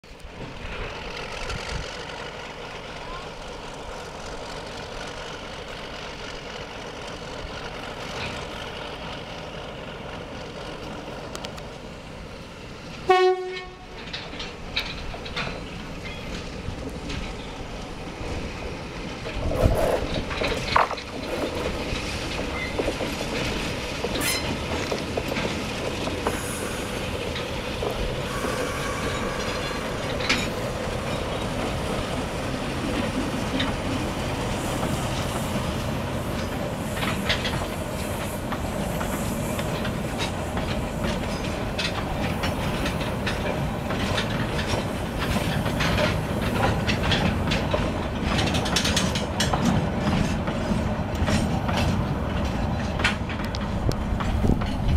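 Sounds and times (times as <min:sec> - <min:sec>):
train wheels rumbling on rail: 0:00.0 - 0:54.9
wheels clicking over rail joints: 0:00.0 - 0:54.9
brief wheel squeal: 0:24.2 - 0:24.6, 0:27.9 - 0:31.5.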